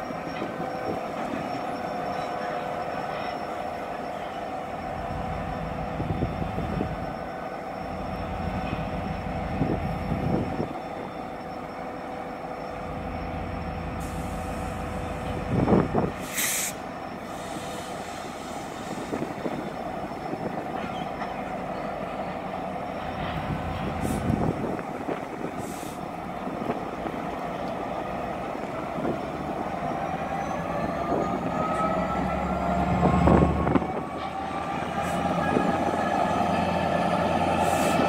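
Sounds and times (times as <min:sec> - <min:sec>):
diesel locomotive engine drone: 0:00.0 - 0:38.0
sharp air hiss: 0:14.0 - 0:15.1, 0:16.2 - 0:19.4, 0:24.0 - 0:24.4, 0:25.6 - 0:26.1.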